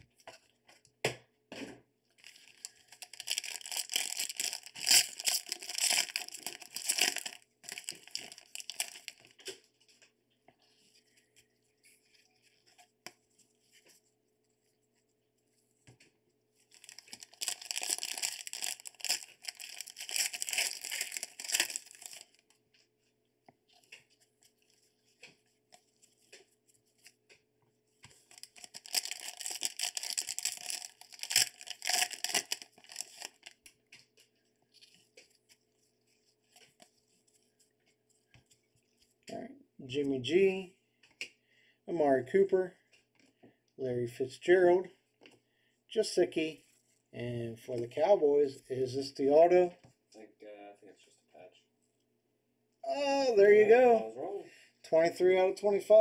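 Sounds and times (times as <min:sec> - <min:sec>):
packaging tearing and crinkling: 0:02.2 - 0:09.3, 0:16.7 - 0:22.4, 0:28.2 - 0:33.6
cards being handled: 0:28.0 - 0:39.1.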